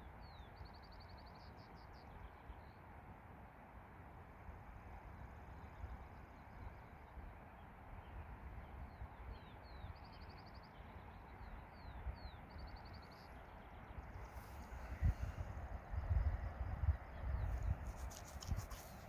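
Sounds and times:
distant songbird singing: 0:00.0 - 0:02.9, 0:05.1 - 0:19.0
wind rumble on microphone: 0:11.5 - 0:19.0
wind gusts buffeting microphone: 0:14.0 - 0:19.0.

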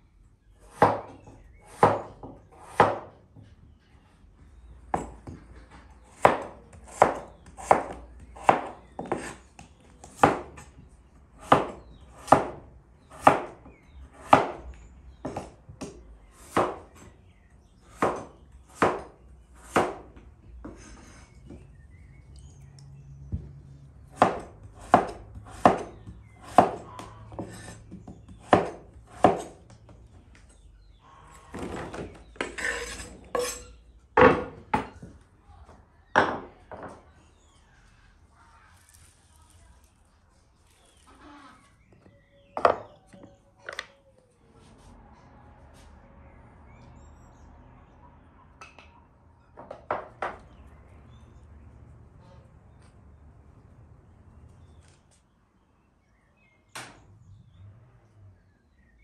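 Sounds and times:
knife chopping on cutting board: 0:00.7 - 0:03.1, 0:06.0 - 0:09.4, 0:10.0 - 0:10.7, 0:11.4 - 0:14.6, 0:17.9 - 0:20.8, 0:24.1 - 0:29.6.

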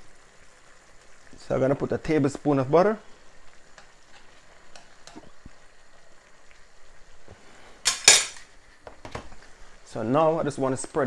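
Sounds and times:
faint sizzling: 0:00.0 - 0:11.0
metal spoon scraping frying pan: 0:03.8 - 0:05.3, 0:07.8 - 0:08.5.

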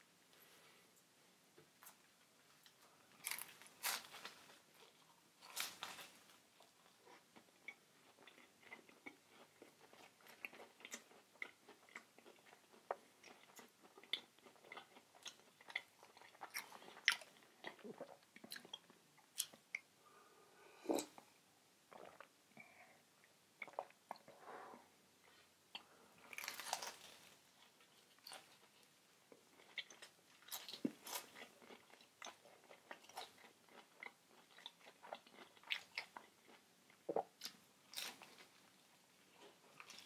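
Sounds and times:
chewing with small crunches: 0:01.6 - 0:20.0, 0:20.9 - 0:24.5, 0:25.2 - 0:40.0
crunchy bites into fried food: 0:26.4 - 0:27.1.

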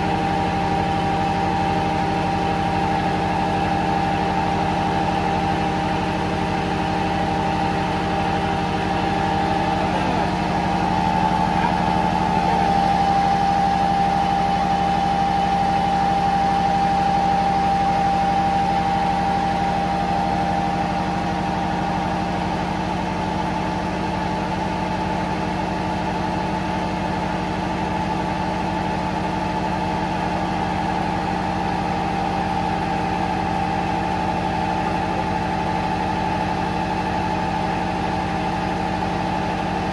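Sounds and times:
higher machinery whine: 0:00.0 - 0:23.6
engine room machinery droning: 0:00.0 - 0:39.9.

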